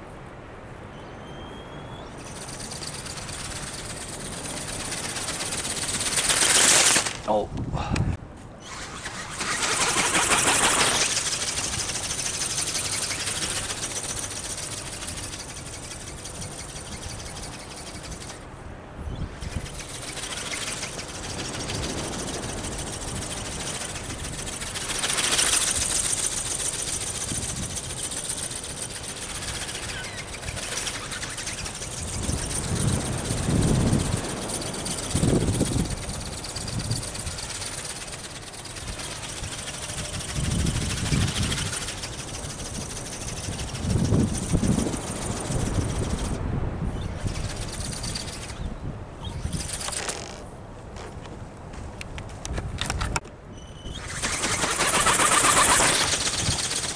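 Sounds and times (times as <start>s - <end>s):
wing beats clatter: 0.0s - 7.6s, 8.2s - 56.9s
wind rumble on microphone: 7.2s - 26.3s, 29.2s - 37.8s, 38.8s - 56.9s
small motor whine: 8.6s - 18.4s, 19.1s - 46.4s, 47.0s - 50.4s, 53.6s - 56.9s.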